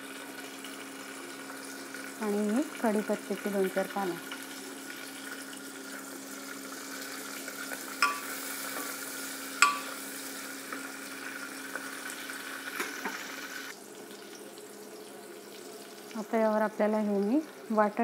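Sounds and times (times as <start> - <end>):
vegetables sizzling in hot oil: 0.0 - 18.0
spatula clinking on pot: 8.0 - 8.3, 9.6 - 10.0.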